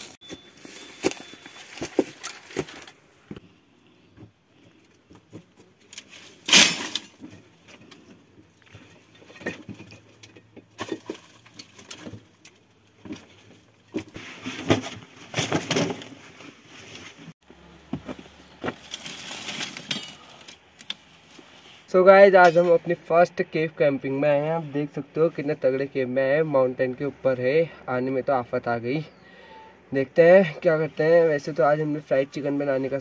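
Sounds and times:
sticks cracking and clattering on rocks: 18.6s - 21.1s.

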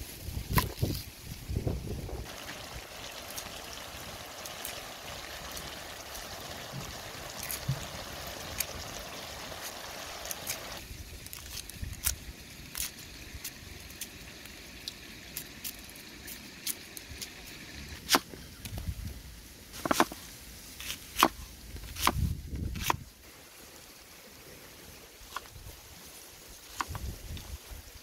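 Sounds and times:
food sizzling in a wok: 2.2s - 11.2s.

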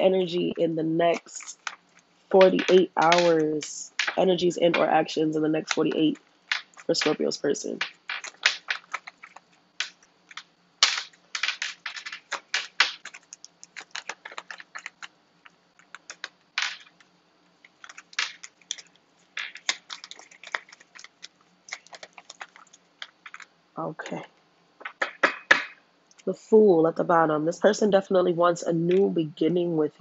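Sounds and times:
cards being shuffled: 1.1s - 4.9s, 5.6s - 23.5s.

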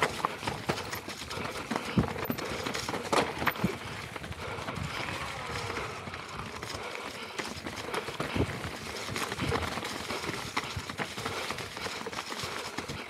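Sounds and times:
tyres crunching over stones: 0.0s - 5.6s
bike knocking and rattling: 0.0s - 13.0s.

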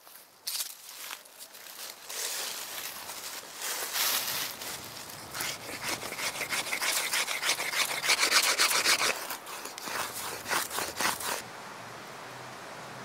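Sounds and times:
wood rasping against stone: 4.9s - 11.4s.

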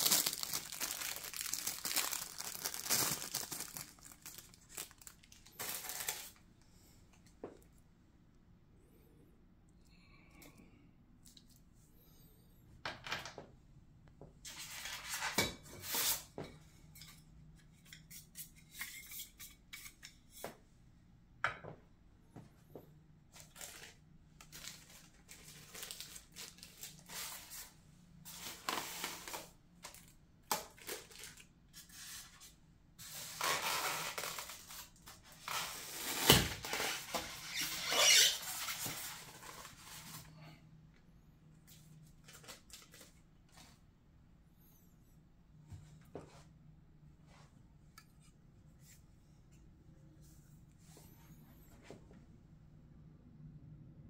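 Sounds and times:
plastic wrap rustling: 0.0s - 6.5s, 23.3s - 40.3s
squeaking against foam tray: 36.7s - 38.6s.

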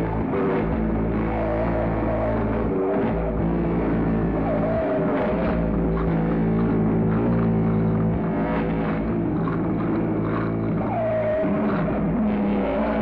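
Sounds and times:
low drone of stacked tones: 0.0s - 13.0s.

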